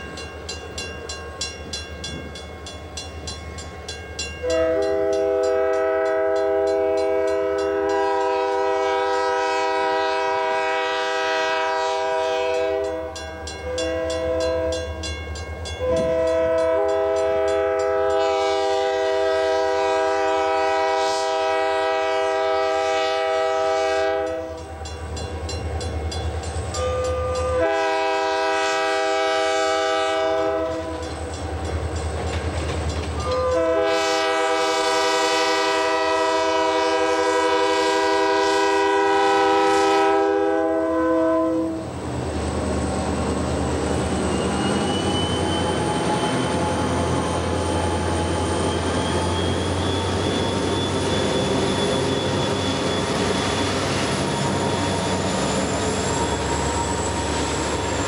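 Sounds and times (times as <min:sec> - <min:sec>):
diesel locomotive rumbling past: 0:00.0 - 0:58.0
locomotive air horn blasts: 0:04.4 - 0:14.9, 0:15.8 - 0:24.8, 0:26.8 - 0:31.1, 0:33.2 - 0:41.9.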